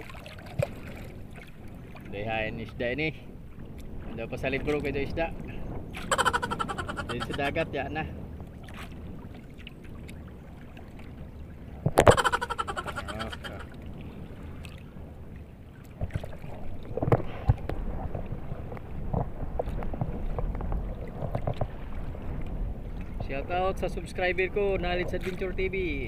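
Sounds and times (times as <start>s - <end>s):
water slapping against hull: 0.0s - 2.2s, 8.4s - 14.9s, 15.8s - 23.2s, 25.1s - 25.6s.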